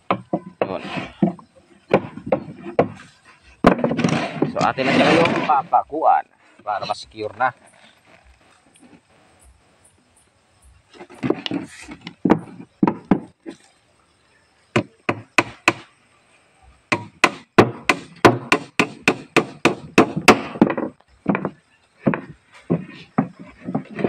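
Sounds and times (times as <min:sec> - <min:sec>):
hammer driving nails into wood: 0:16.9 - 0:21.4.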